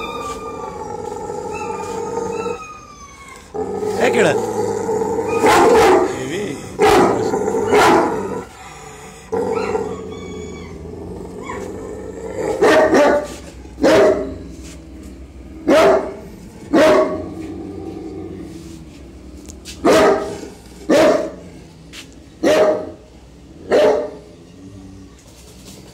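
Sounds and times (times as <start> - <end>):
dog whining: 0.0 - 4.4, 5.2 - 6.4, 9.3 - 15.3
dog barking: 5.3 - 6.2, 6.8 - 8.2, 12.5 - 14.3, 15.7 - 17.2, 19.8 - 21.4, 22.4 - 23.0, 23.7 - 24.2.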